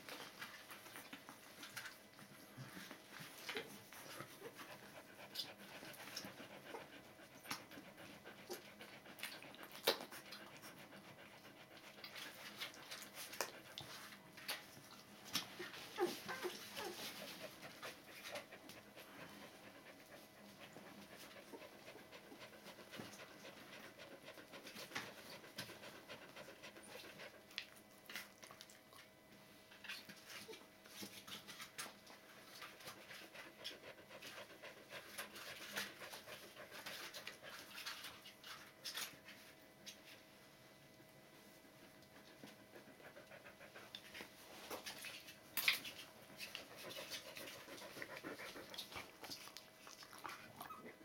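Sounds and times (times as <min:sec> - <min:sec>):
dog panting softly: 0:00.0 - 0:51.0
puppies suckling clicks: 0:07.4 - 0:07.8, 0:08.4 - 0:10.8.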